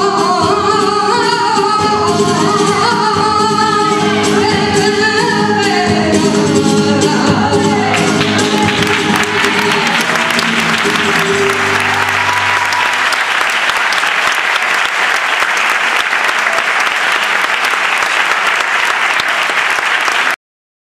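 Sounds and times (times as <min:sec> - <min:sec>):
audience applauding: 0:07.9 - 0:20.4.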